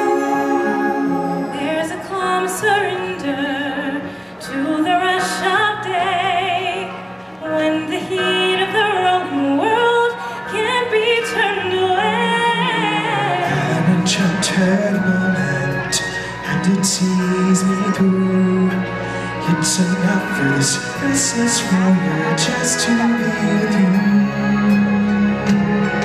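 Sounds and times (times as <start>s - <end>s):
held accompanying chords: 0.0s - 3.9s
woman singing with vibrato: 0.0s - 13.6s.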